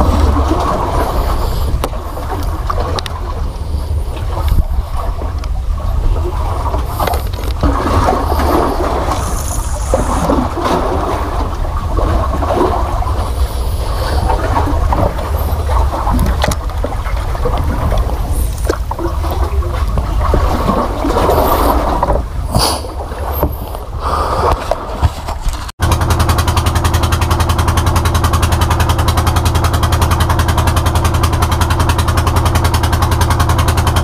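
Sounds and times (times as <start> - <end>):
wind rumble on microphone: 0.0 - 25.7
water splashing against boat hull: 0.0 - 34.0.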